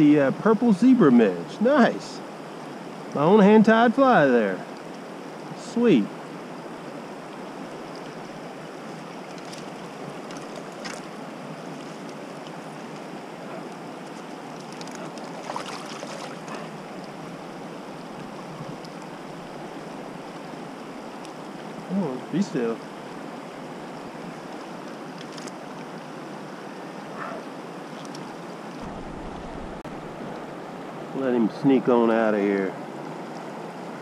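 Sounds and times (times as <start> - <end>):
rocky river running: 0.0 - 34.0
faint water splashes: 4.0 - 30.5.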